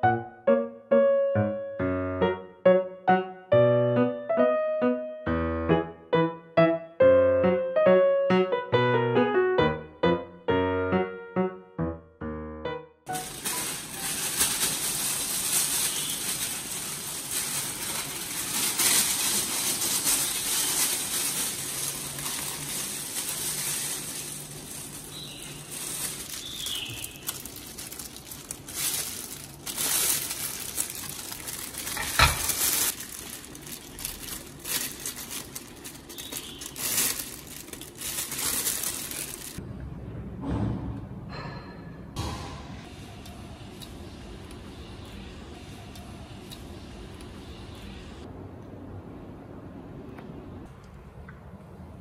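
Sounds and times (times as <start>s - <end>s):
plastic gloves crinkling: 13.1s - 39.6s.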